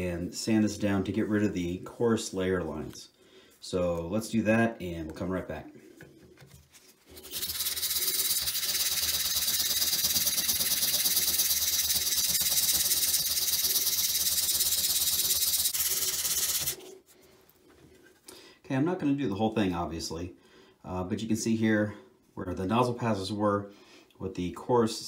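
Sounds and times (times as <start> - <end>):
sandpaper rasping on plastic: 7.1 - 16.8.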